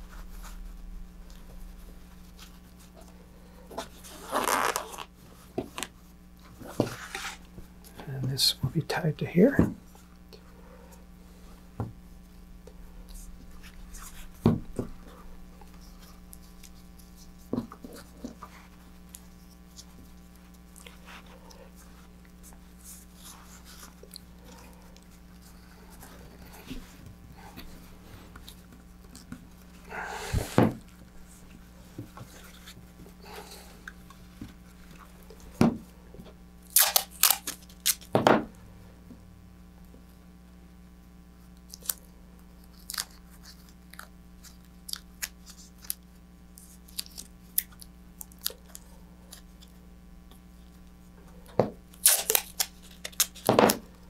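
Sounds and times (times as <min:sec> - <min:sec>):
masking tape tearing off roll: 0:03.7 - 0:05.2, 0:36.6 - 0:38.2, 0:51.9 - 0:53.8.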